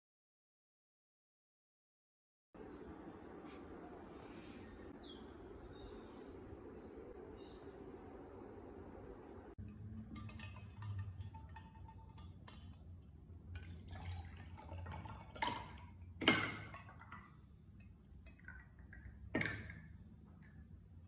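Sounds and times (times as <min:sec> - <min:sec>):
liquid pouring into a glass: 0:09.6 - 0:19.9.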